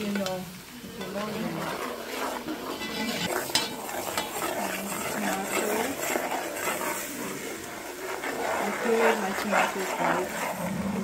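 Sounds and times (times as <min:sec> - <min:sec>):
onions sizzling: 0:00.0 - 0:11.0
metal spoon scraping a pot: 0:00.9 - 0:11.0
spoon clinking against pot: 0:02.8 - 0:04.4.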